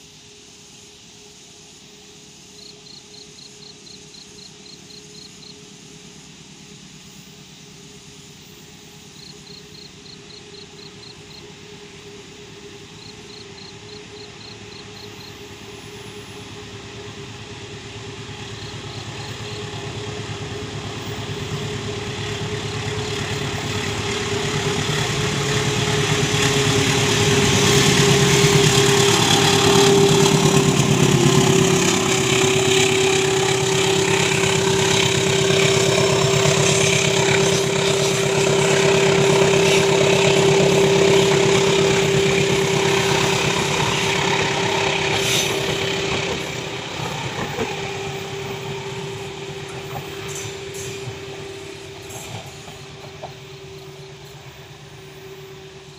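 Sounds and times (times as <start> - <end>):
diesel locomotive engine drone: 0.0 - 55.9
high insect chirps: 1.2 - 5.7
train wheels clattering on rails: 12.5 - 55.9.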